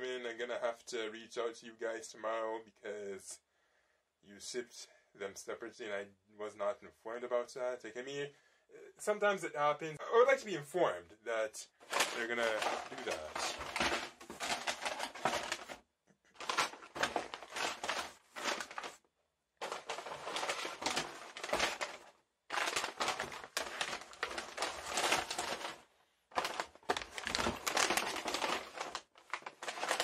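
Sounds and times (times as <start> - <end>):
packaging crinkling and crackling: 11.8 - 15.8, 16.4 - 19.0, 19.6 - 30.0.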